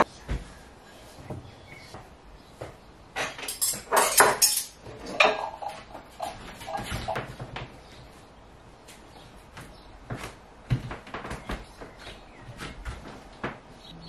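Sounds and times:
crockery and cutlery clinking: 3.2 - 7.2.

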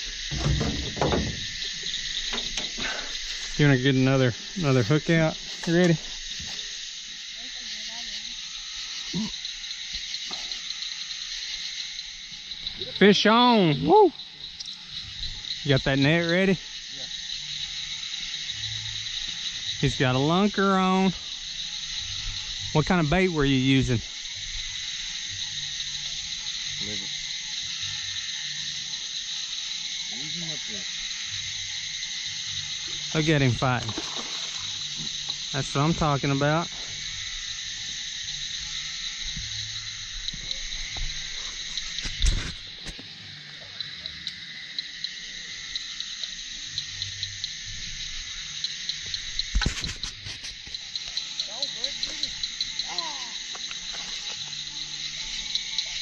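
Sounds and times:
crickets chirping: 0.0 - 56.0.

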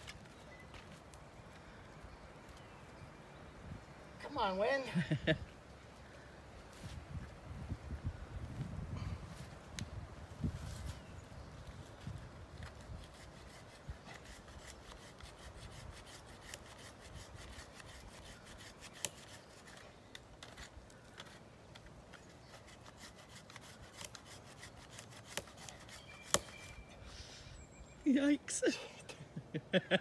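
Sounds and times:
hand saw rasping through wood: 13.0 - 19.8, 22.5 - 26.8.

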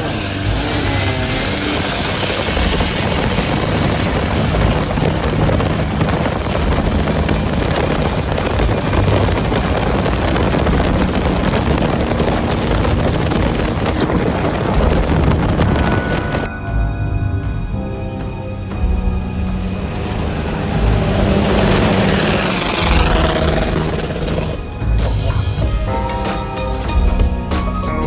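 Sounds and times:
boat engine running flat out: 0.0 - 16.5, 18.9 - 25.2
water rushing: 0.0 - 16.5, 19.3 - 24.9
rushing wind: 0.0 - 27.0.

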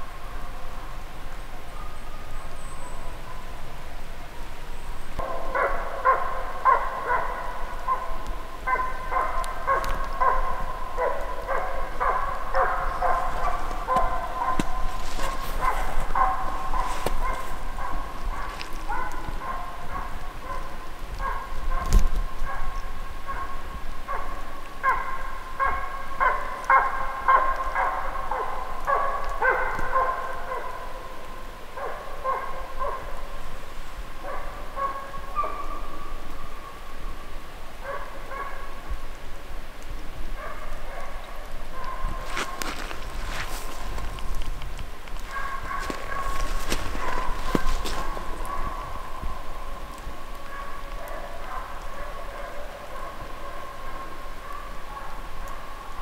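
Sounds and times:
hound baying: 5.2 - 21.9, 31.8 - 33.2, 34.2 - 35.9, 40.4 - 44.4, 45.1 - 55.7
dog barking: 5.2 - 33.4, 34.2 - 35.9, 37.8 - 38.8, 40.4 - 44.1, 45.2 - 49.7, 50.3 - 55.8.

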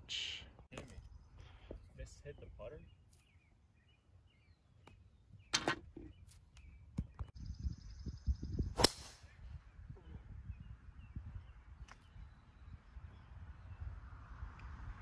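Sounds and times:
wind rumble on microphone: 6.9 - 15.0.

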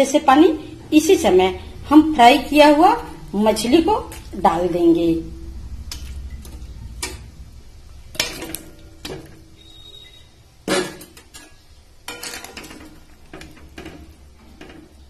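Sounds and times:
low steady hum: 0.0 - 15.0
metal utensils clinking on metal pan: 10.7 - 15.0.

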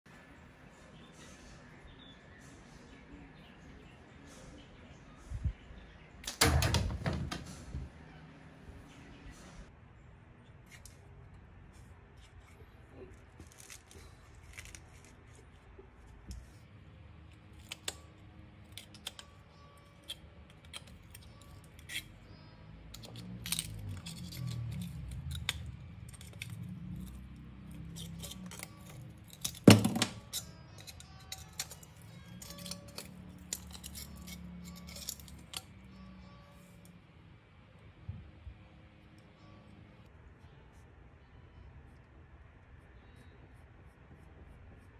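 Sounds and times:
small metallic clicks and scrapes: 17.3 - 22.2, 22.9 - 36.0.

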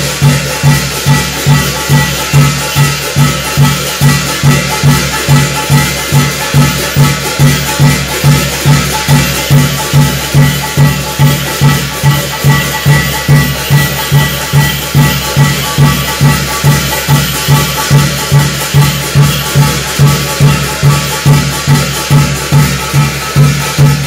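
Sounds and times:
drum beating steadily: 0.0 - 24.0
hand cymbals clashing: 0.0 - 24.0.

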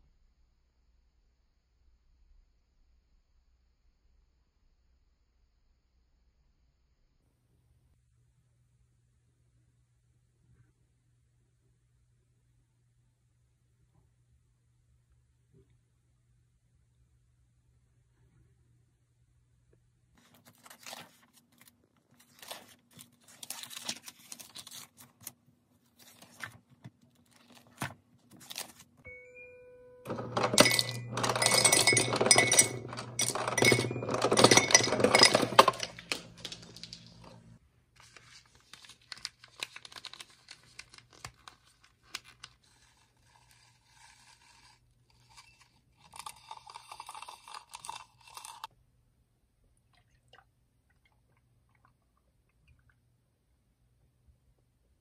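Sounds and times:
paper rustling: 20.2 - 29.0, 34.2 - 45.8
short electronic beep: 29.1 - 30.1
ice cubes clattering into mug: 30.1 - 37.4, 46.0 - 48.7.

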